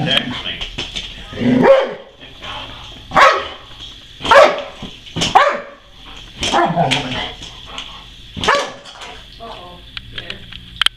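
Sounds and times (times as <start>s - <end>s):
dog barking: 1.6s - 2.1s, 3.1s - 5.9s, 8.4s - 8.8s.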